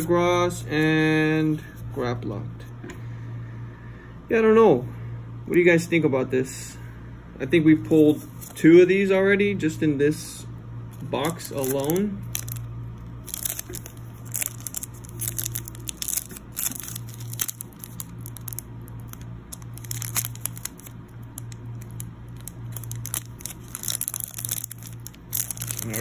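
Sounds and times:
foil wrapper crinkling: 0:11.1 - 0:26.0.

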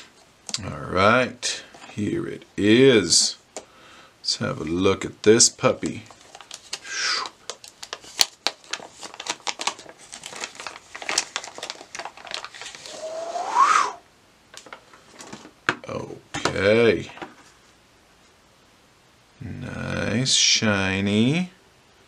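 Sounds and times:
plastic bag crinkling: 0:06.0 - 0:13.1.

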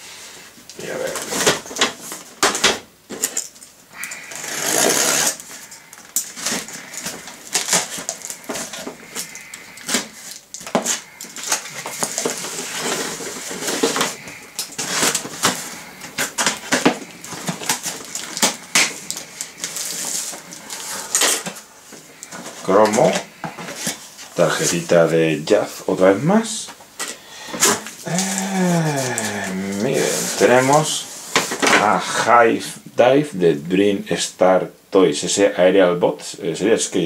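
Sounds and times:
packing tape being cut: 0:04.0 - 0:21.0.

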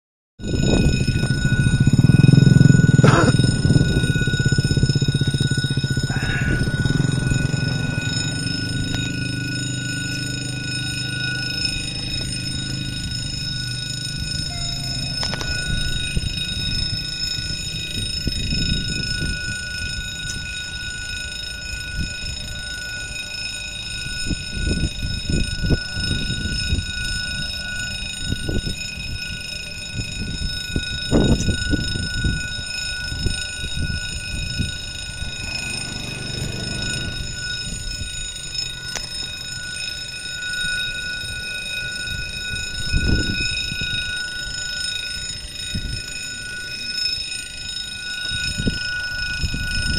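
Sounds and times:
low gusty rumble: 0:00.4 - 0:10.0
level crossing signal ringing: 0:00.4 - 0:49.9.

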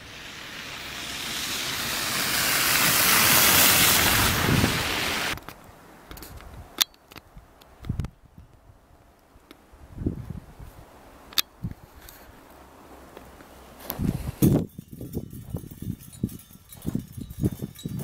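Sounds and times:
car passing by: 0:00.0 - 0:05.4.

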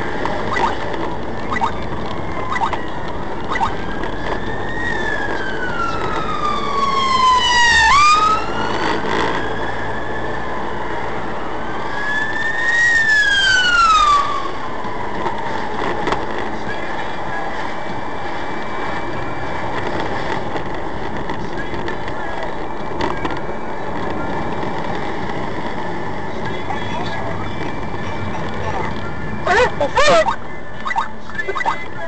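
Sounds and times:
road and engine drone: 0:00.0 - 0:32.0
siren wailing: 0:00.4 - 0:16.0, 0:27.6 - 0:31.9.

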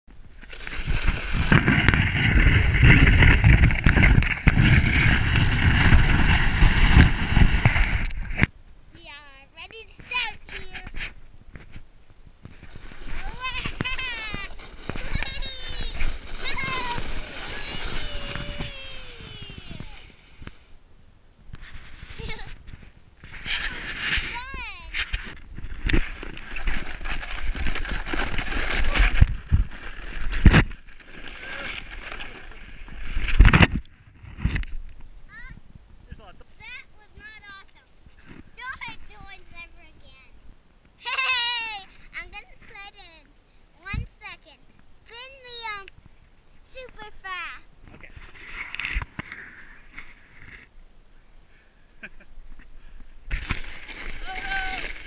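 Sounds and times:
sled scraping on snow: 0:00.4 - 0:08.4, 0:12.4 - 0:20.6, 0:21.6 - 0:34.6, 0:53.3 - 0:55.0
wind buffeting microphone: 0:00.8 - 0:08.5, 0:12.3 - 0:20.7.

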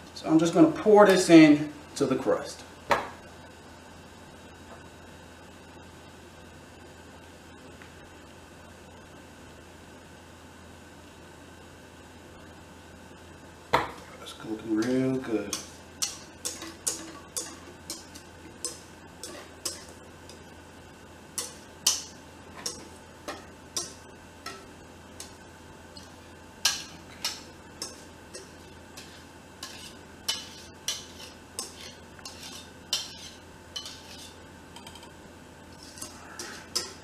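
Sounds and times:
spatula scraping metal bowl: 0:14.8 - 0:20.5, 0:26.6 - 0:34.4, 0:35.7 - 0:37.0.

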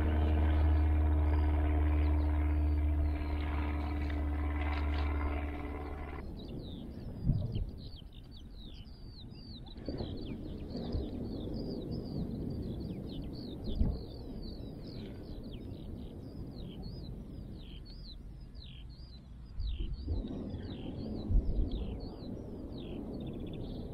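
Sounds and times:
low steady rumble: 0:00.0 - 0:08.8
small birds chirping: 0:00.0 - 0:23.9.

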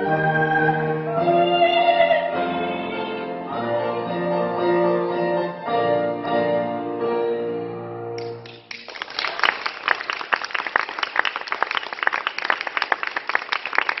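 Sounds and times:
woman singing: 0:00.0 - 0:04.3
piano: 0:00.0 - 0:10.0
audience applause: 0:08.4 - 0:14.0.

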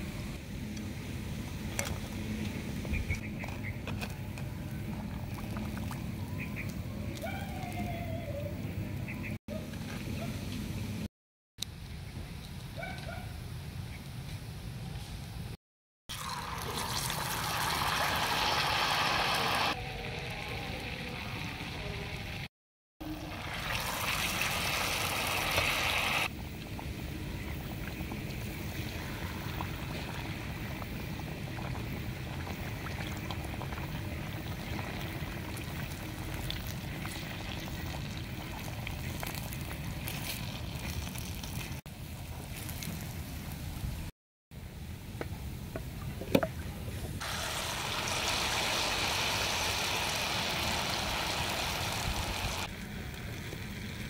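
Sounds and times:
cakes deep-frying in hot oil: 0:16.1 - 0:44.1, 0:47.2 - 0:54.0.

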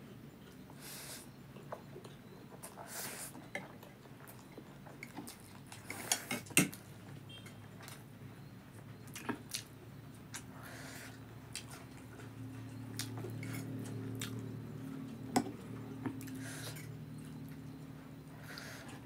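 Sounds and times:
soft chewing: 0:00.1 - 0:06.9, 0:08.7 - 0:19.0.

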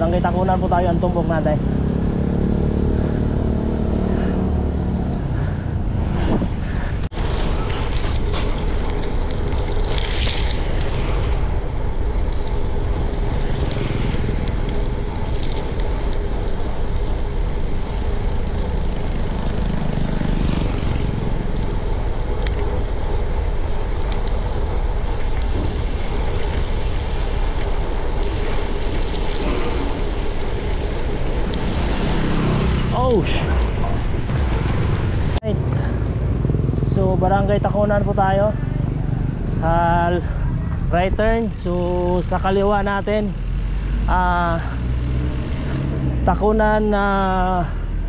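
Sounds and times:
wind rushing over microphone: 0:00.0 - 0:37.6
passing motor traffic: 0:00.0 - 0:48.0
road noise: 0:00.0 - 0:48.0.

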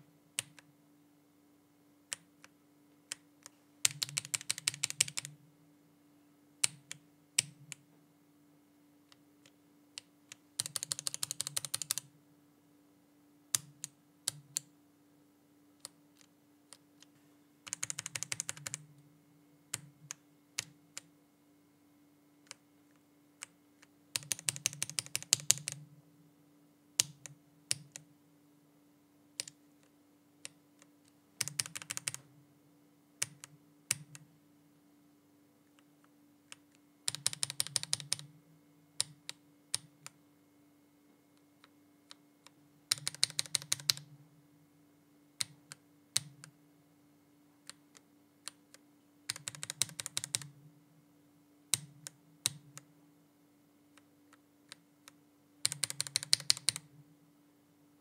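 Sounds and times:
faint steady hum: 0:00.0 - 0:58.0
mechanical keyboard keystrokes: 0:03.8 - 0:05.3, 0:10.6 - 0:12.0, 0:17.7 - 0:18.8, 0:24.2 - 0:25.8, 0:31.4 - 0:32.2, 0:37.1 - 0:38.2, 0:42.9 - 0:44.0, 0:49.3 - 0:50.5, 0:55.6 - 0:56.8.

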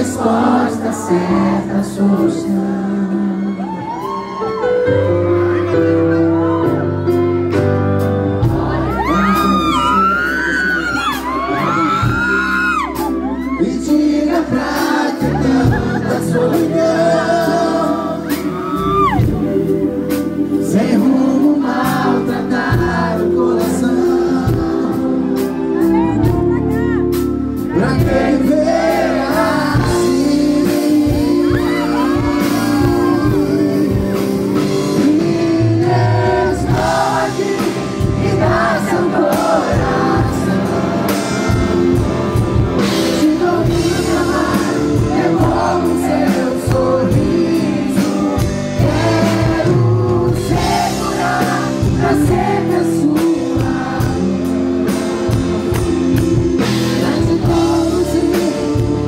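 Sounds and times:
man singing into microphone: 0:00.0 - 0:04.0, 0:08.6 - 0:25.9, 0:27.6 - 0:42.1, 0:42.8 - 0:55.7, 0:56.6 - 0:59.0
live pop rock band: 0:00.0 - 0:59.0.

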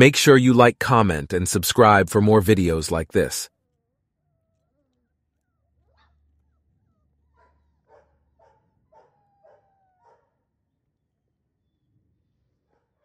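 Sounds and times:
puppy whining: 0:08.9 - 0:10.3.

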